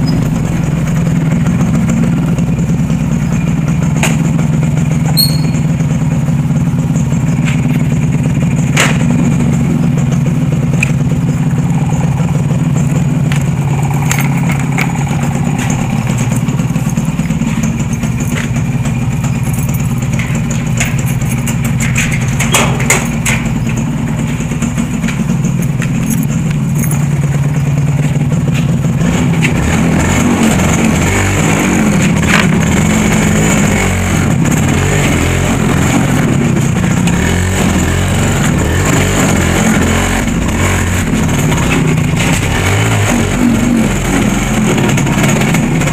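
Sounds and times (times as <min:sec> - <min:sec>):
vehicle engine running: 0:00.0 - 0:45.9.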